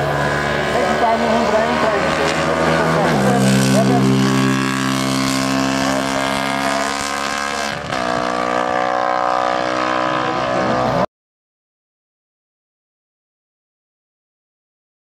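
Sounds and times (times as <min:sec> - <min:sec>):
racing motorcycle engine revving: 0:00.0 - 0:11.1.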